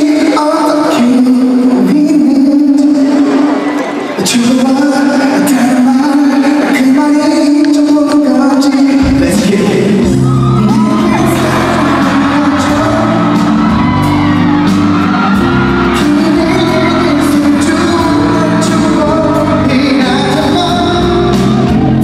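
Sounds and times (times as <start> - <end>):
man singing: 0.0 - 13.9, 15.2 - 22.0
pop music backing beat: 0.0 - 22.0
audience shouts and whoops: 10.0 - 22.0.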